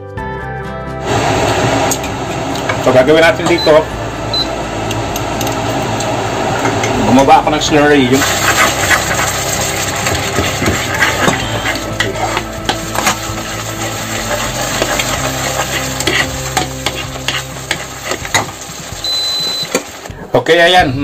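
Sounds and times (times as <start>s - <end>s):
sauce bubbling and sizzling: 3.7s - 7.4s, 8.0s - 20.2s
ladle scraping a wok: 8.1s - 20.1s.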